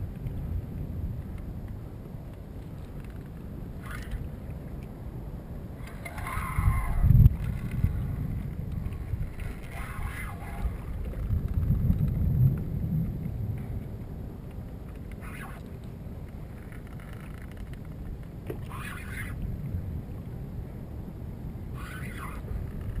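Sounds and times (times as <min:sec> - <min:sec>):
wind buffeting microphone: 0:00.0 - 0:23.0
water sloshing against kayak hull: 0:05.8 - 0:12.3.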